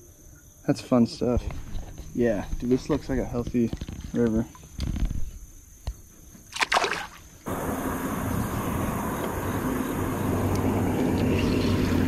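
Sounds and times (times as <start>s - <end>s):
low mechanical drone: 7.5s - 12.0s
rushing noise: 7.5s - 12.0s.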